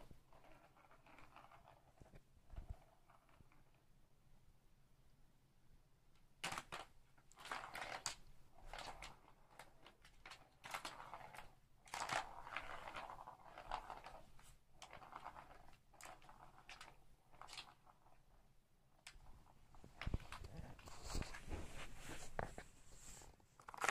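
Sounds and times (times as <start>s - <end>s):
ball rattling in plastic track: 0.3s - 3.8s, 6.4s - 18.4s, 23.6s - 23.9s.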